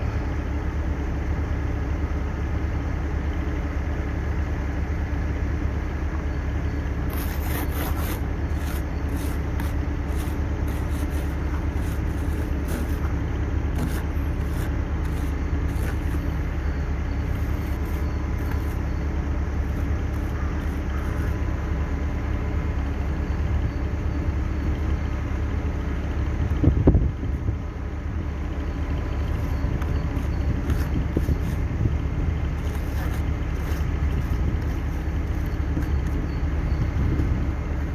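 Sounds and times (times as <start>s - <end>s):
car engine idling: 5.6s - 26.6s.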